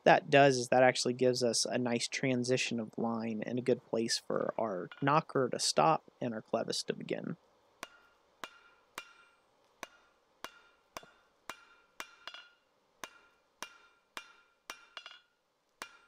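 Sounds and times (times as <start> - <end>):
hammer striking hot steel on anvil: 7.8 - 16.0.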